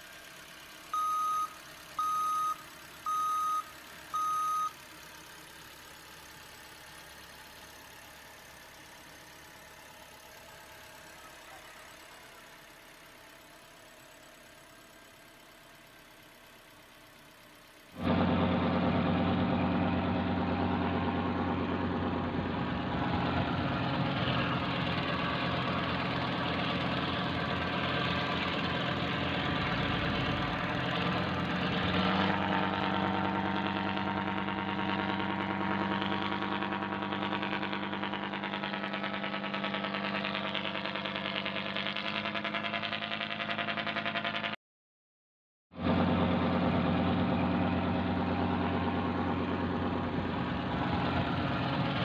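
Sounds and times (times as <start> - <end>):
simulated diesel ship engine: 8.6 - 41.2, 45.8 - 52.0.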